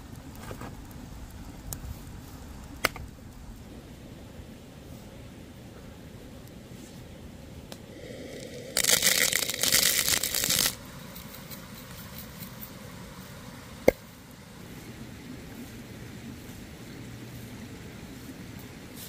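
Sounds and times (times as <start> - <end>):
spices poured into wooden bowl: 8.0 - 12.8.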